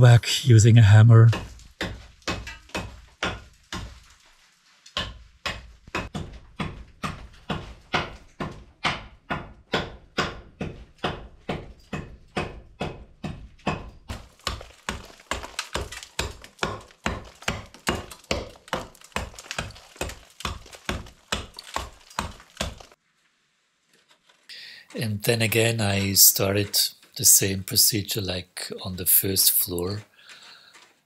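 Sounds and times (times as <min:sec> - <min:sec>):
hammer chipping mortar: 0:01.2 - 0:23.0, 0:25.3 - 0:27.1.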